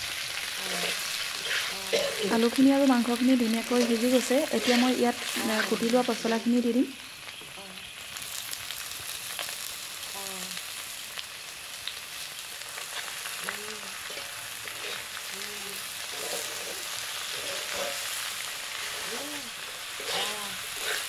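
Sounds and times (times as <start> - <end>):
food sizzling in a wok: 0.0 - 21.0
metal spatula scraping a pan: 0.6 - 6.4, 12.8 - 21.0.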